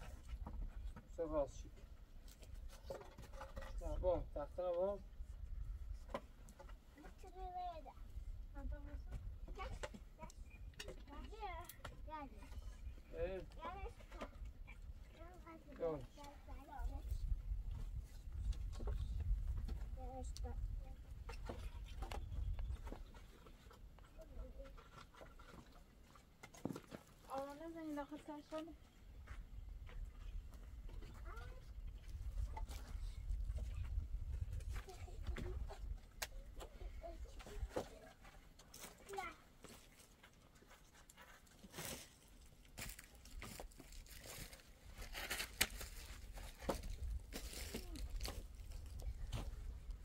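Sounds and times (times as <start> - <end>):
wooden poles knocking together: 2.4 - 4.0
footsteps on stony ground: 37.4 - 50.0.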